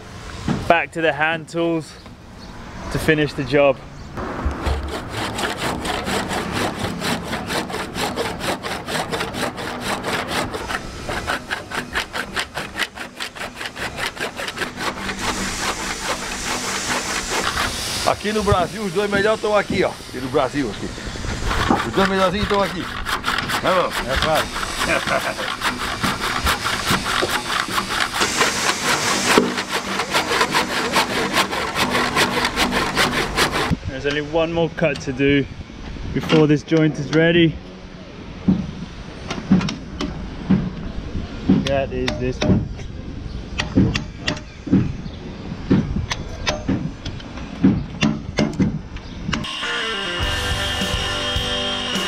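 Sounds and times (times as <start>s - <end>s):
handsaw cutting wood: 4.4s - 33.8s.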